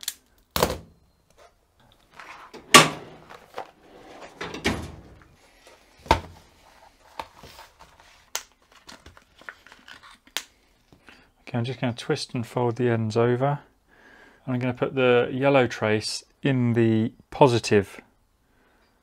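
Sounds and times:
drawers sliding and rattling: 2.2 - 5.3
metal drawers knocking shut: 2.5 - 3.3, 3.9 - 5.2.

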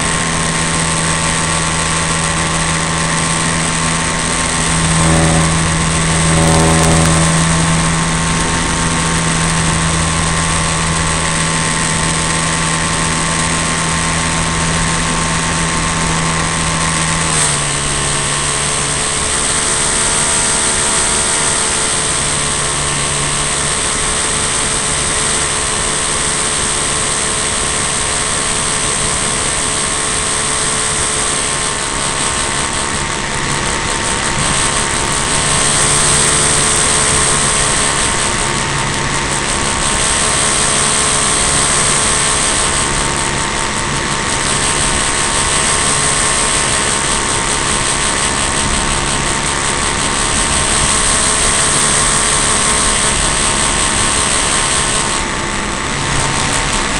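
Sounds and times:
model plane engine and propeller: 0.0 - 56.9.

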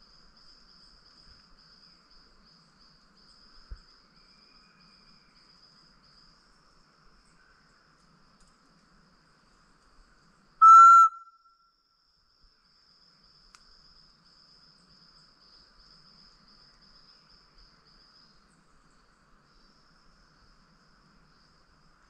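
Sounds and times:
short whistled bird call: 10.6 - 11.6.

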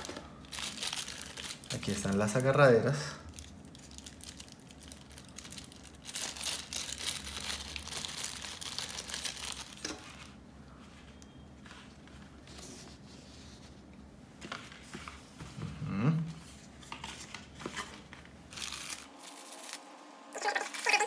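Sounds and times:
plastic bag crinkling: 0.0 - 10.4, 18.5 - 21.0.

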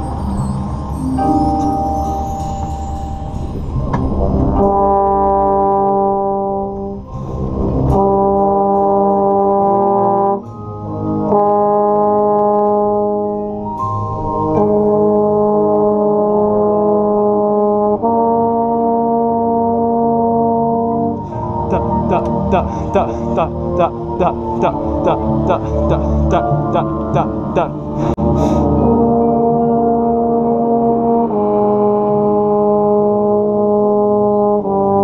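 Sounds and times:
brass band playing held chords: 4.4 - 13.7, 14.3 - 35.0
baritone horn close up: 7.9 - 13.4.

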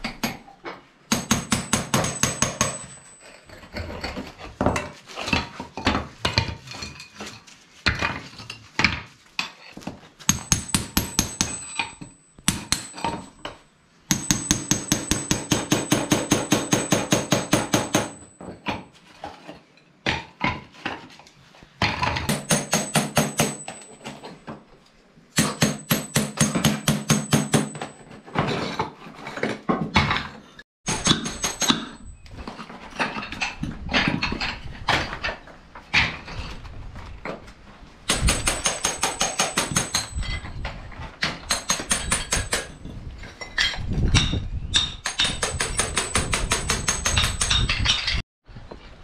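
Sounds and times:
hammer striking a chisel: 1.1 - 3.1, 10.3 - 18.5, 22.3 - 24.0, 25.4 - 28.0, 30.9 - 32.1, 38.1 - 40.3, 41.2 - 42.8, 44.2 - 48.0.

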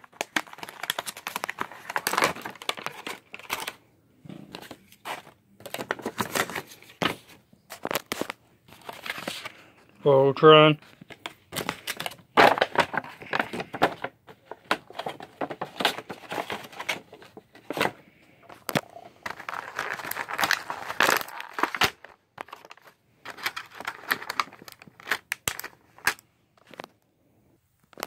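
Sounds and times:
cardboard box crackling: 0.0 - 3.8, 4.5 - 9.5, 10.9 - 25.7
plastic bag crinkling: 0.0 - 3.8, 14.6 - 26.9.

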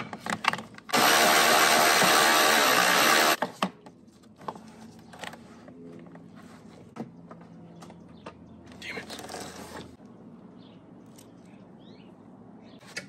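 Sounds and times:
cordless ratchet motor whine: 0.9 - 3.4.

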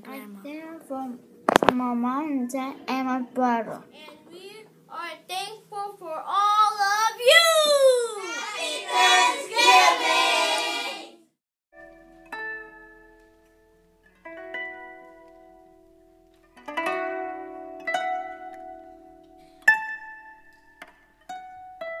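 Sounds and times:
plucked string music: 1.4 - 4.6, 11.8 - 22.0
children calling out together: 6.6 - 11.2.

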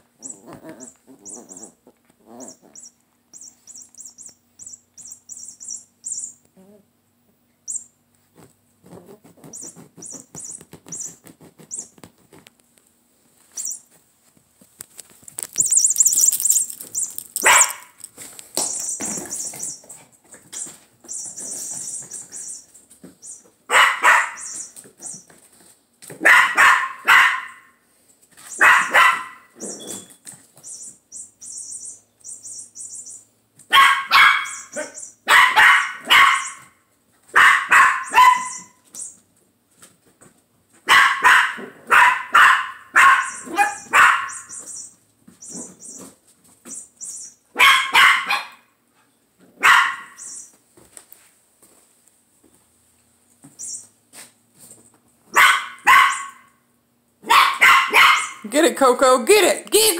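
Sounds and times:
puppy yapping: 0.2 - 6.8, 15.6 - 18.0, 23.2 - 25.2, 26.2 - 27.7, 28.5 - 30.1, 33.7 - 38.8, 40.8 - 46.0, 47.5 - 48.7, 49.6 - 50.5, 55.3 - 56.6, 57.2 - 58.4.

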